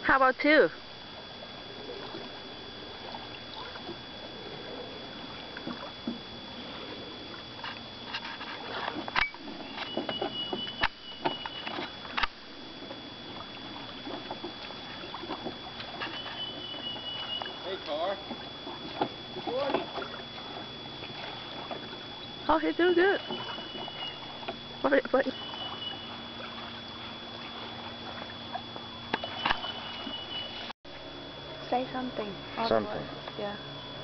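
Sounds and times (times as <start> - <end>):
oars knocking in oarlocks: 7.6 - 12.4, 18.2 - 20.2.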